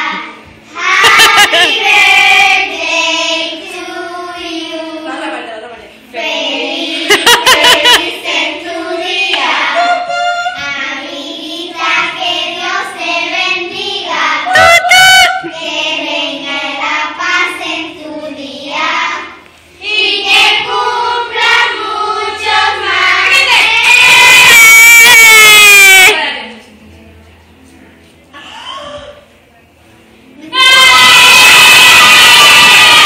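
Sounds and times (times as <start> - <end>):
girls singing together: 0.0 - 14.7, 15.3 - 25.0
loud high squeal: 9.7 - 10.7.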